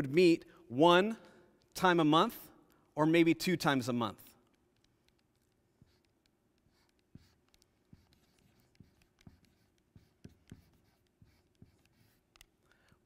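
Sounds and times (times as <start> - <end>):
marker writing on board: 4.4 - 12.9.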